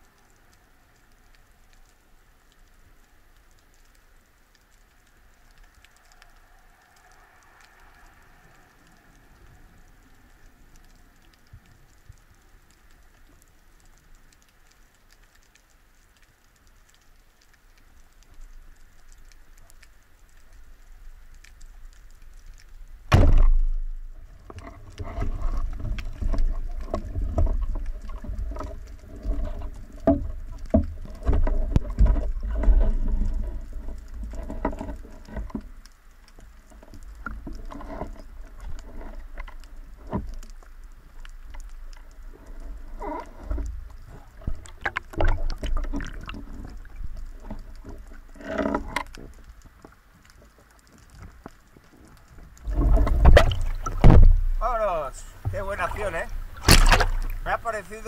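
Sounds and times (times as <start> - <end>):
faint underwater noise: 0.0 - 58.0
low thumps and clicks: 52.6 - 54.7, 55.4 - 58.0
speargun firing crack: 56.6 - 57.3.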